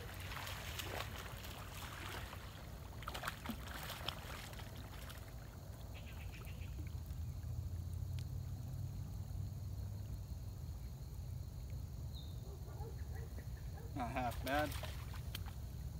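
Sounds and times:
water sloshing and splashing: 0.0s - 7.6s, 14.0s - 15.9s.

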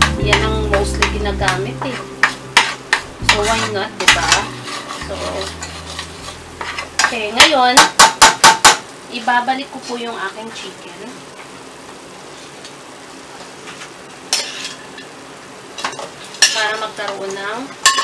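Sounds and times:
oil sizzling: 0.0s - 9.1s, 11.3s - 18.0s
metal spoon scraping a pan: 1.8s - 7.2s, 14.3s - 15.1s.

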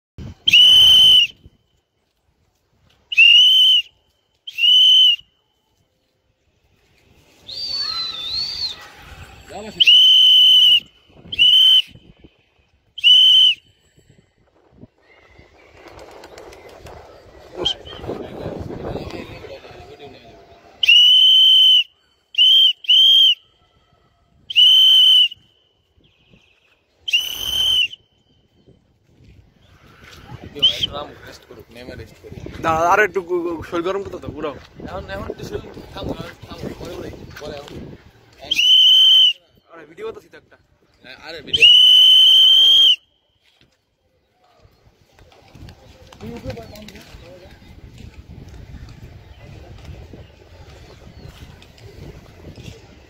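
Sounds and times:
high-pitched whistle blasts: 0.5s - 1.6s, 3.1s - 5.7s, 7.4s - 8.9s, 9.7s - 14.2s, 20.8s - 28.5s, 38.5s - 39.7s, 41.5s - 43.5s.

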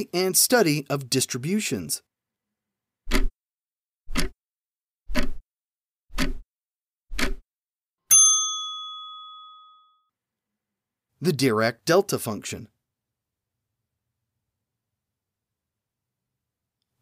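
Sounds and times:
clock ticks: 3.1s - 3.3s, 4.1s - 4.4s, 5.1s - 5.4s, 6.1s - 6.4s, 7.1s - 7.4s
bell ding: 8.1s - 10.1s.

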